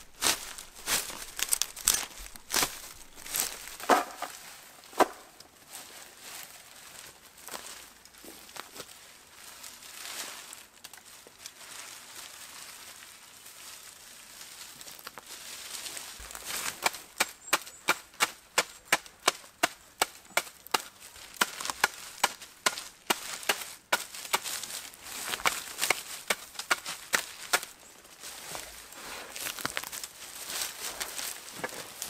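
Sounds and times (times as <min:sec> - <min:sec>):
reed rustling: 0:00.0 - 0:32.0
tool knocking on thatch: 0:03.8 - 0:04.3.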